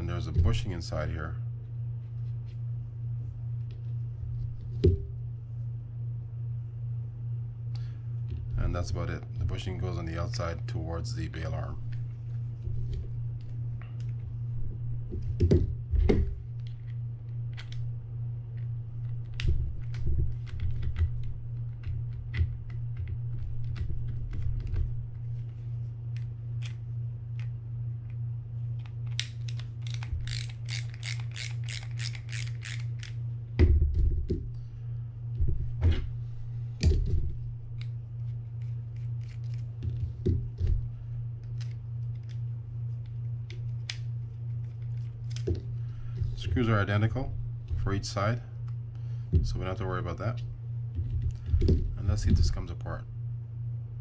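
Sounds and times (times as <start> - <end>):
steady low hum: 0.0 - 54.0
screwdriver and reel clicks: 28.8 - 33.2.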